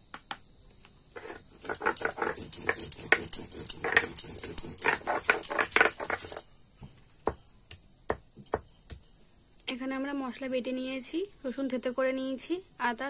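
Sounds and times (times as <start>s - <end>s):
stone grinding on stone: 1.2s - 6.5s.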